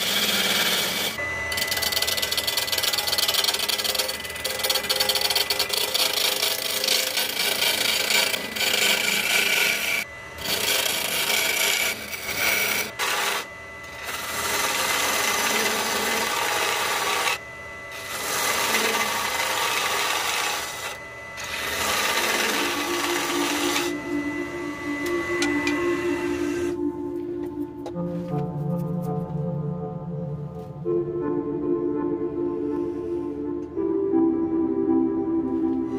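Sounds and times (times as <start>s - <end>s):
gouge cutting wood on lathe: 0.0s - 26.8s.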